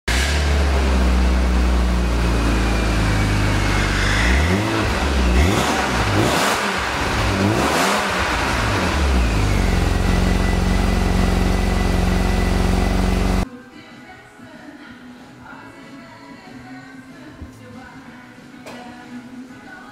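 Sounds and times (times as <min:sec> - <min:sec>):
car engine idling and revving: 0:00.1 - 0:13.4.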